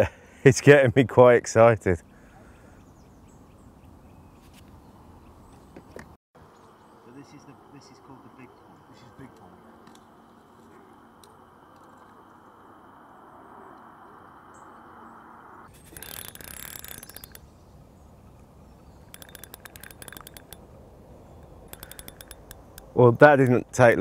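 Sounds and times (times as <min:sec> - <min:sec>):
fishing reel ticking: 0:15.7 - 0:17.4, 0:19.0 - 0:20.7, 0:21.3 - 0:23.0.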